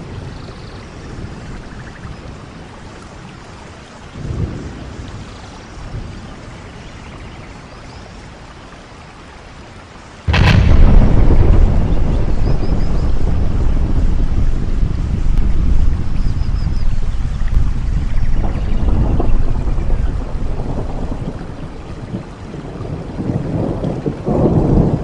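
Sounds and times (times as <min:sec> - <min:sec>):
explosion-like boom: 0:10.3 - 0:22.2
stormy wind rushing: 0:10.3 - 0:25.0.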